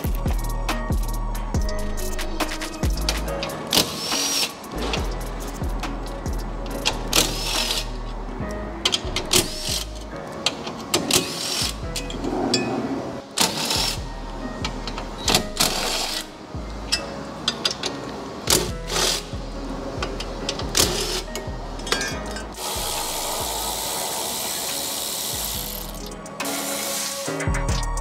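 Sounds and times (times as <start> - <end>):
background music: 0.0 - 28.0
electric ratchet running: 22.6 - 27.1.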